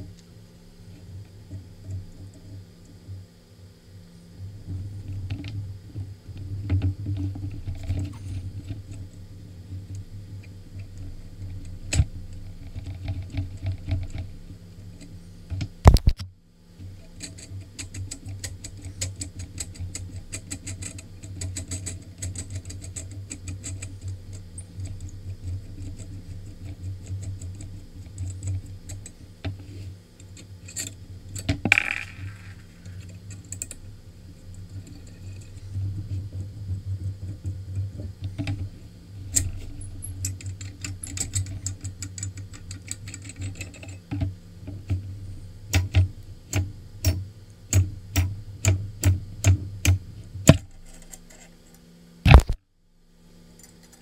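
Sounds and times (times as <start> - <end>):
low steady hum: 0.0 - 54.0
small clicks and taps: 15.0 - 16.3, 45.7 - 51.3.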